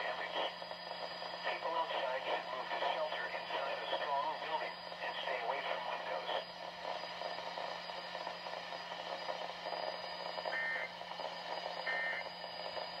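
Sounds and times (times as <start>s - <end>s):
radio static hiss: 0.0s - 0.7s, 1.3s - 7.0s
two-tone data bursts: 9.8s - 10.9s.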